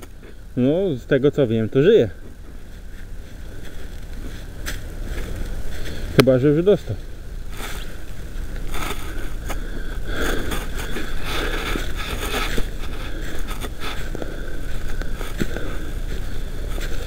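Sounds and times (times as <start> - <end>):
clothing and gear rustling: 2.2 - 6.2, 7.0 - 17.0
footsteps through dry leaves: 2.2 - 17.0.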